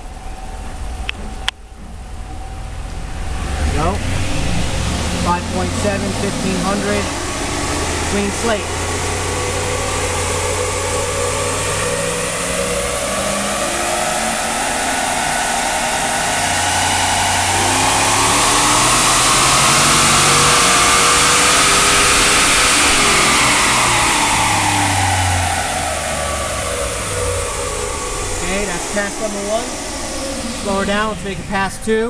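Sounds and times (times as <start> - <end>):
car engine revving on dyno: 0.0 - 32.0.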